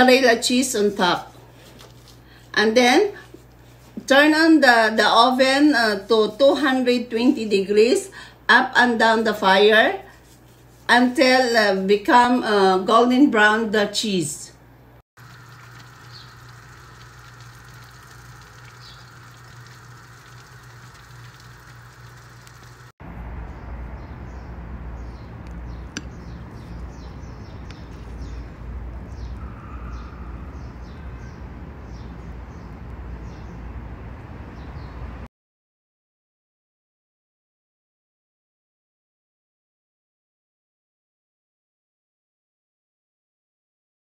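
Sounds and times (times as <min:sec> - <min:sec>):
small birds chirping: 0:15.2 - 0:22.9, 0:23.5 - 0:33.7
steady hum: 0:15.2 - 0:23.3.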